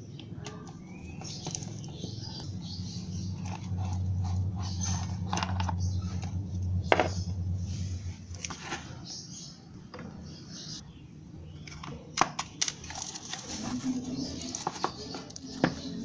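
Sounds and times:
steady low hum: 0.2 - 11.6.

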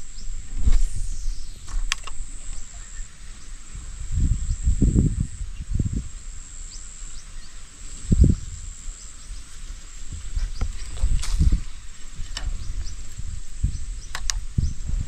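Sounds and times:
faint chirps: 0.0 - 9.6
insects droning: 0.0 - 15.0.

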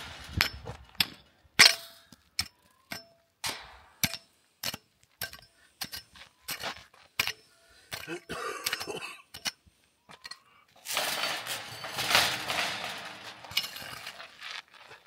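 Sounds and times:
hoe striking stony dirt: 0.0 - 10.3.

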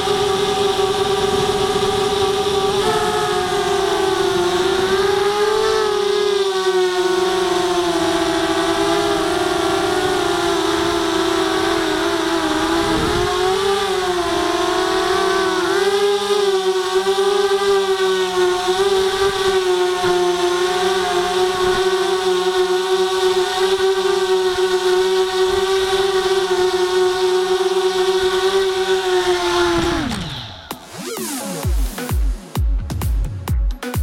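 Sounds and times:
quadcopter motors whining: 0.0 - 32.1.

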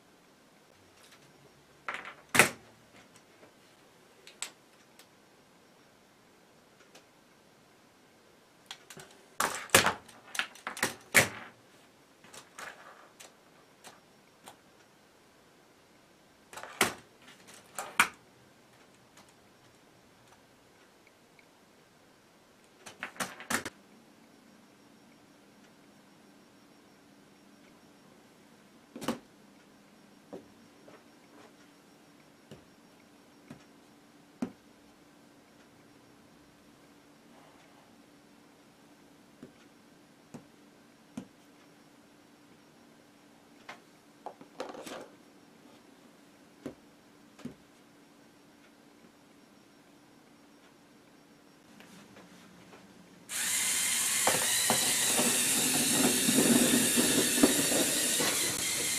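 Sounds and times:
plastic toy clattering on table: 44.5 - 45.1.

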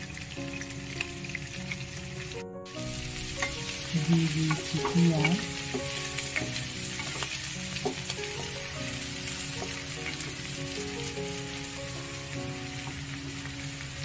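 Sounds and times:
food sizzling in hot oil: 0.0 - 14.0.

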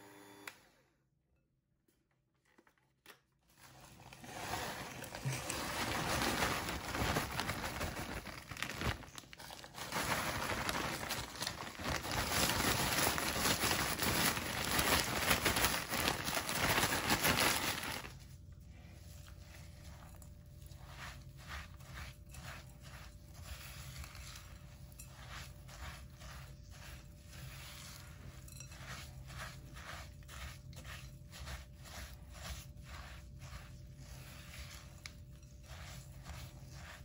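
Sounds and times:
plastic crinkling: 3.6 - 18.3.

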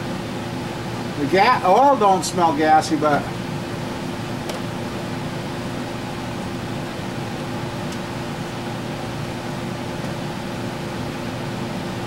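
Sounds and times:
fan-like mechanical hum: 0.0 - 12.0.

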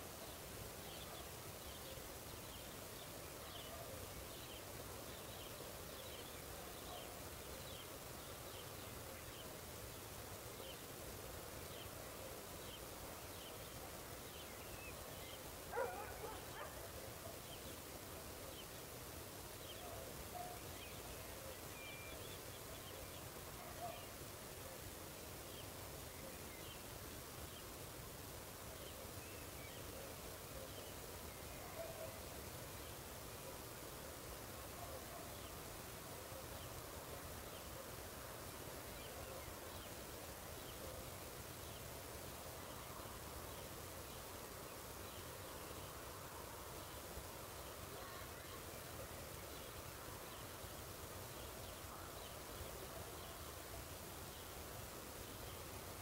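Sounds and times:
low background hiss: 0.0 - 56.0
dog barking: 15.7 - 17.0, 19.9 - 20.6, 23.6 - 24.1
small bark-like call: 15.7 - 17.5, 19.8 - 20.7, 31.6 - 32.2.

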